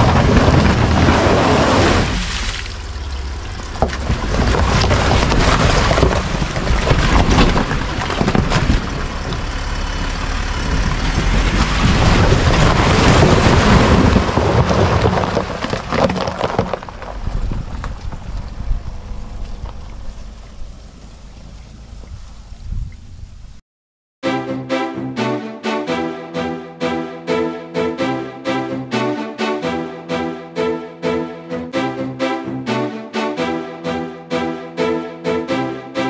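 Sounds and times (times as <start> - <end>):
tyres crunching through ice: 0.0 - 9.6, 10.6 - 20.4
tyres splashing through water: 0.0 - 9.6
low vehicle rumble: 0.0 - 23.6.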